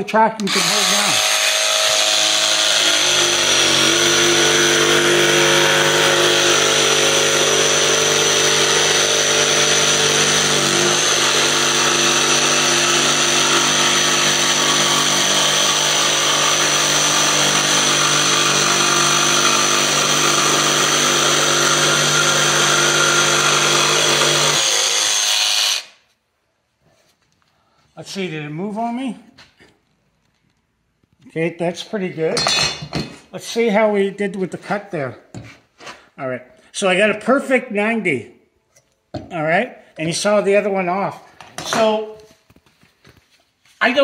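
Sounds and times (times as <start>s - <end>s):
jigsaw cutting wood: 0.4s - 26.0s.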